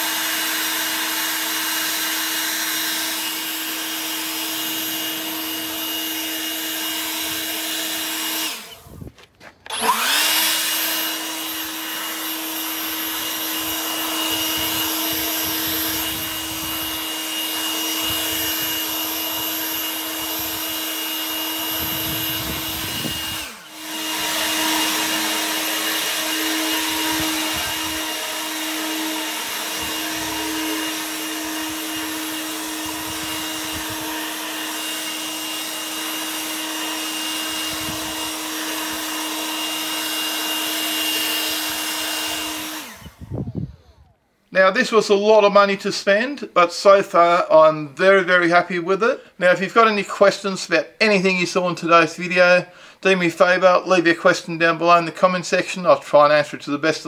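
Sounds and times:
leaf blower running: 0.0s - 45.6s.

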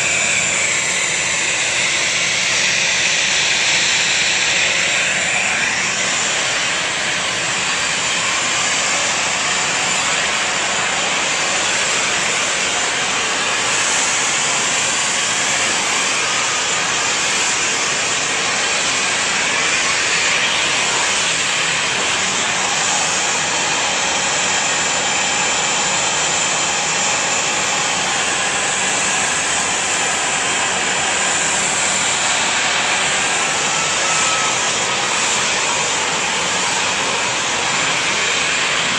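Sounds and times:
jet engines running: 0.0s - 38.9s.

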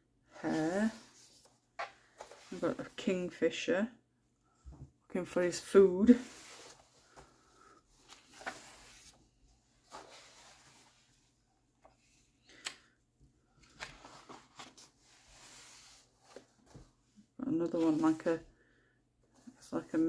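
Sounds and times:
paper rustling: 6.1s - 12.7s, 13.5s - 16.9s.

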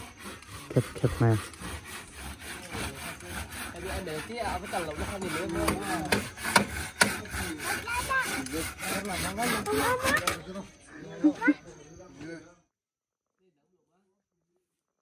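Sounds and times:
handsaw cutting wood: 0.0s - 10.4s.

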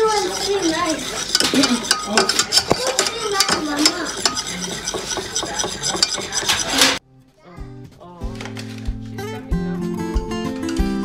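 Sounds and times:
whisk scraping a metal pot: 0.0s - 7.0s.

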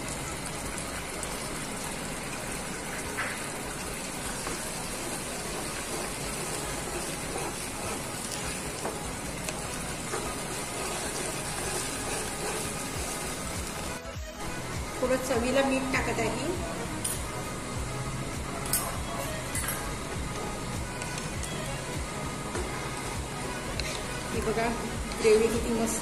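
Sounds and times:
sauce bubbling in a wok: 0.0s - 14.0s
spatula scraping: 5.1s - 13.5s.

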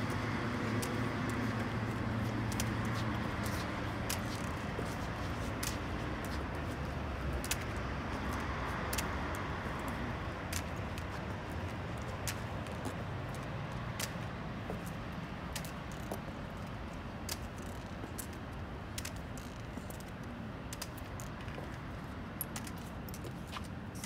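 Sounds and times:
heels and crutch tips tapping pavement: 0.0s - 24.0s.

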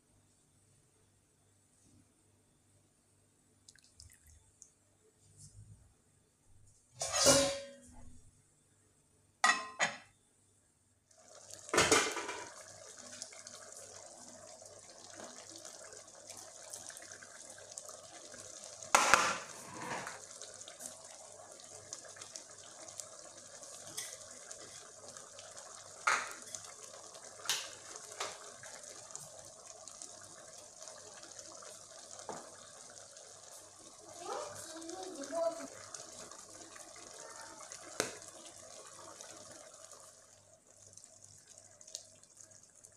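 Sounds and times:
pot bubbling and hissing: 3.6s - 5.8s, 11.0s - 42.9s.

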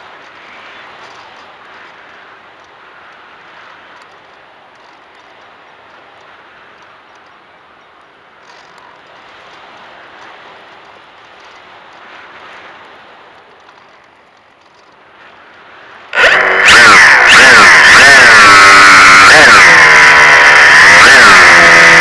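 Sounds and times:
airflow and motor noise: 15.1s - 22.0s.

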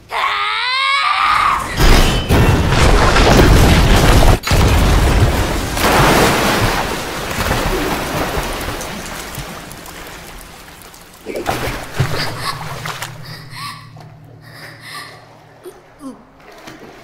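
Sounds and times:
loud splashing impact: 2.7s - 10.1s.

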